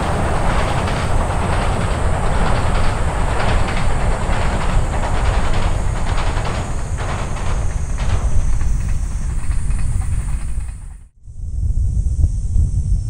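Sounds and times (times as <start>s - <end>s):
freight train rumbling on bridge: 0.0s - 11.1s
wheels clacking over rail joints: 0.0s - 11.1s.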